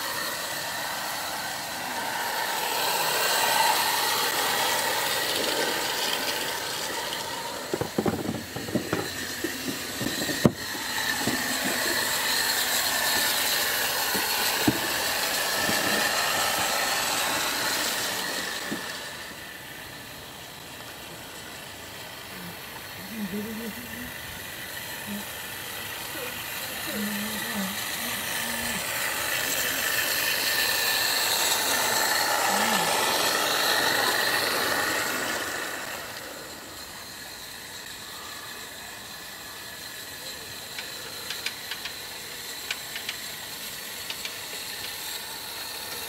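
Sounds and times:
steam hiss: 0.0 - 46.0
model train clicks and knocks: 5.2 - 16.6, 40.6 - 46.0.

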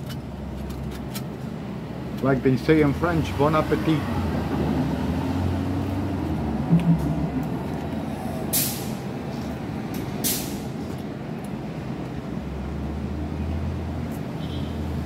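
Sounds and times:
street traffic rumble: 0.0 - 15.0
short sharp hisses: 8.1 - 9.0, 10.2 - 10.6.

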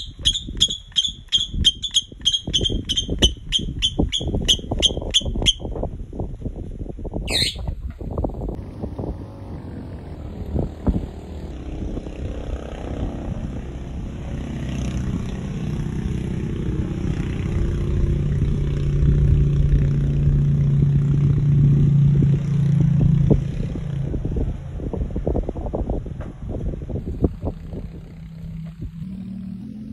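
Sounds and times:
wind rumble on microphone: 0.0 - 29.9
motor engine humming: 7.6 - 23.6, 26.1 - 29.9.

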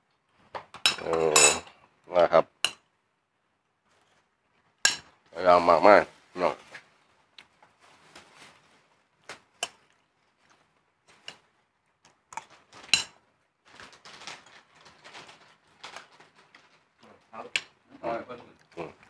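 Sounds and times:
soft rustling: 5.8 - 11.6, 12.5 - 17.4.

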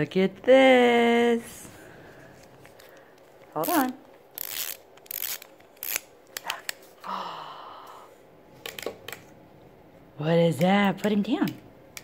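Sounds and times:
toy whirring buzz: 3.6 - 6.1.

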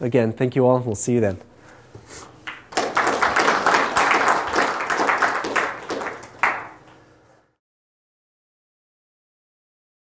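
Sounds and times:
audience applauding: 2.4 - 6.8.

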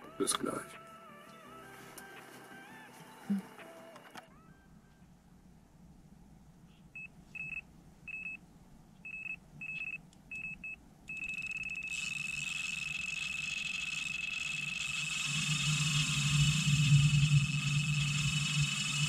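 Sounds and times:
electronic bite alarm bleeping: 9.1 - 19.0
steady hiss: 14.6 - 19.0.

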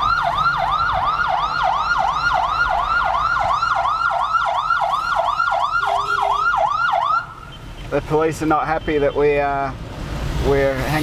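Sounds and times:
police siren yelping: 0.0 - 7.4.

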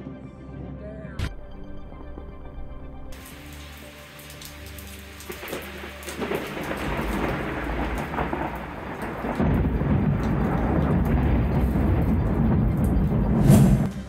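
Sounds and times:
rain falling: 3.1 - 13.7
thunder rumbling: 5.3 - 14.0.

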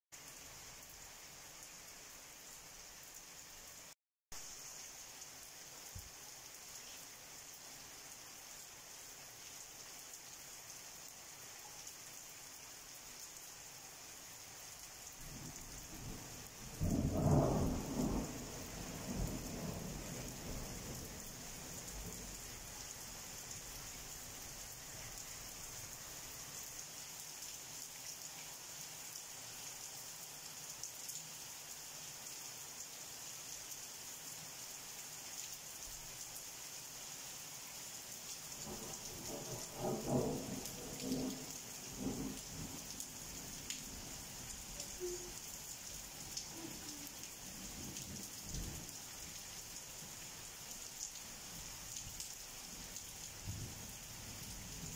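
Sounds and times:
heavy rain falling: 14.4 - 26.4, 38.3 - 54.9.

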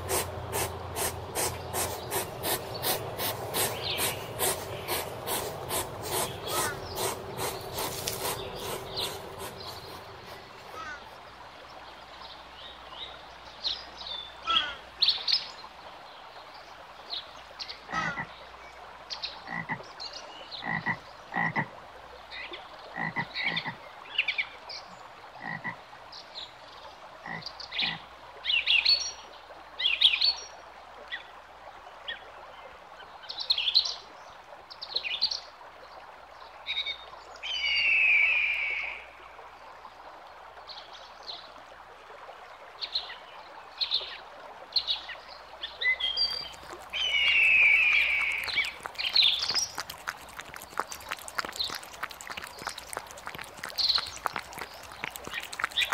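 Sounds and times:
animal calls: 0.0 - 11.2, 46.3 - 55.9.

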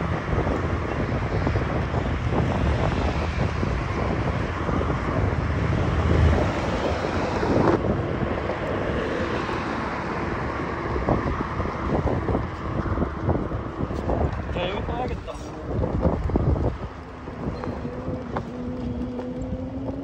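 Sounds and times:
vehicle road rumble: 0.0 - 20.0
wind buffeting microphone: 0.0 - 20.0.

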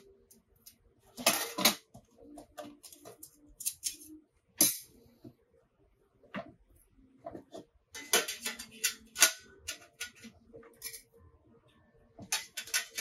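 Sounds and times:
metal plates clicking and clinking: 1.2 - 1.9, 8.0 - 11.1, 12.2 - 13.0.

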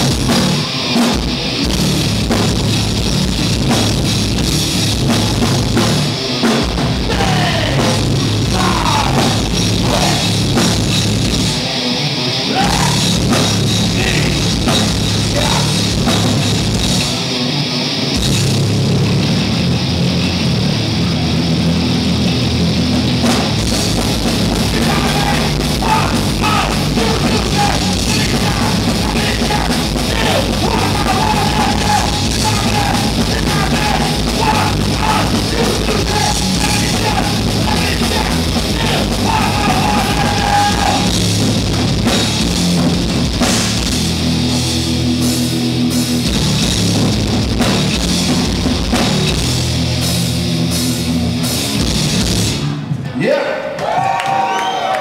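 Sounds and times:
drum kit and cymbals: 0.0 - 20.6, 21.3 - 53.1
bass guitar: 0.0 - 53.2
distorted electric guitars: 0.0 - 53.2
person singing: 7.0 - 10.4, 12.4 - 13.1, 15.3 - 15.8, 24.6 - 41.2.

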